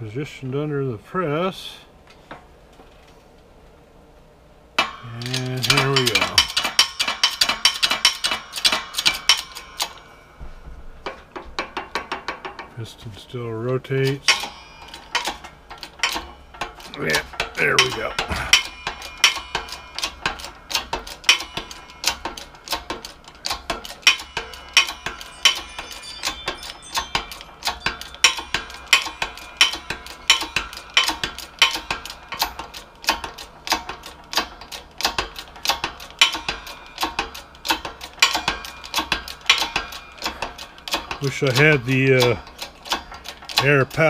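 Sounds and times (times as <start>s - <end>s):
hydraulic jack metallic clicks: 4.8s - 10.0s, 14.1s - 44.0s.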